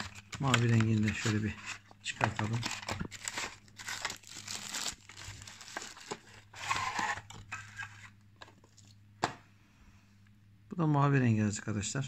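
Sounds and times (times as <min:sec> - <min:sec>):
packaging crinkling and rustling: 0:00.0 - 0:09.0.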